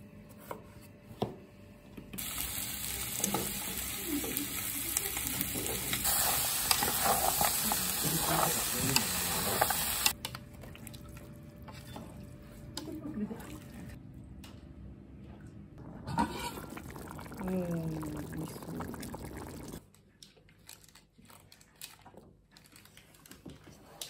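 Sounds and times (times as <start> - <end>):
food sizzling in a metal pot: 2.2 - 10.2
spatula scraping a pot: 16.1 - 16.7.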